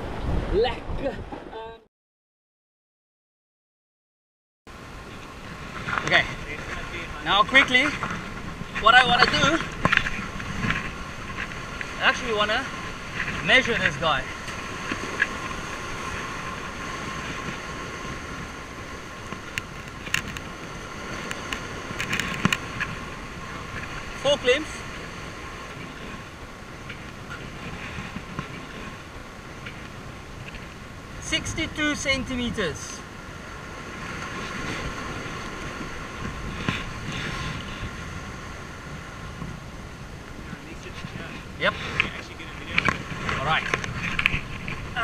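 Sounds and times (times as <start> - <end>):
outdoor background rush with hum: 4.7 - 45.0.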